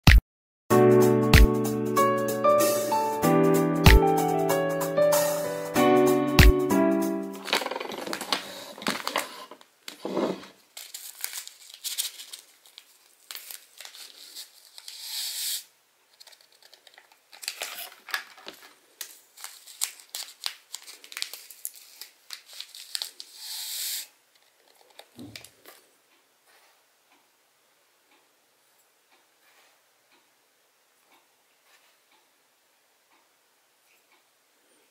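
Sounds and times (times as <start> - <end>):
paper packets crinkling and rustling: 7.4 - 15.2, 16.1 - 23.7.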